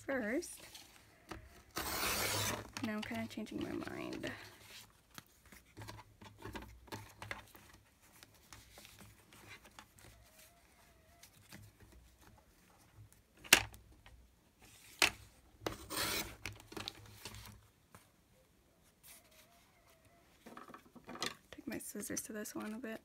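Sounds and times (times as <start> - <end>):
paper rubbing and rustling: 0.6 - 13.2, 15.6 - 18.0.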